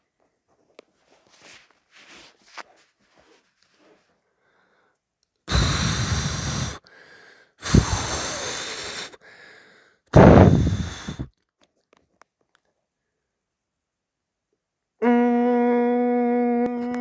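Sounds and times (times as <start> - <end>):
person breathing in: 4.4 - 11.3
person blowing hard puffs of breath: 5.5 - 11.3.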